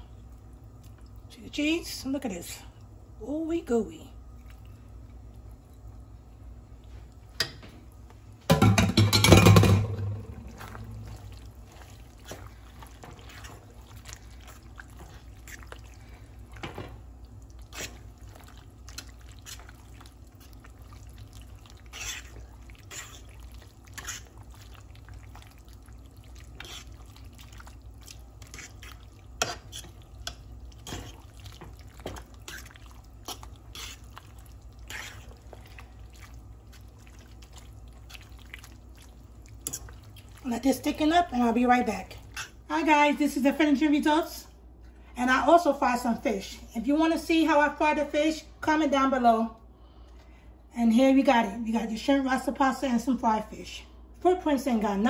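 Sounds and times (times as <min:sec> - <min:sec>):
spoon stirring sticky pasta: 0:09.0 - 0:43.1
shrimp scraped into pan: 0:21.8 - 0:23.3.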